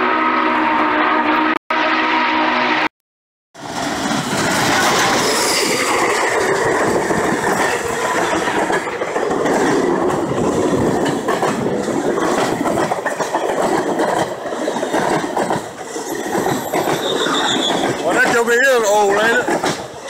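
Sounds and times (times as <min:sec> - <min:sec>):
steam whistle chord: 0:00.0 - 0:02.9
train wheels clattering on rails: 0:03.7 - 0:20.0.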